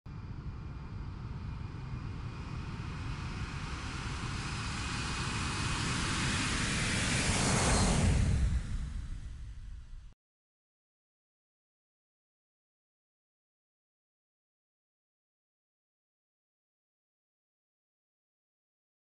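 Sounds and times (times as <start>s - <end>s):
jet airliner flying past: 0.2s - 10.2s.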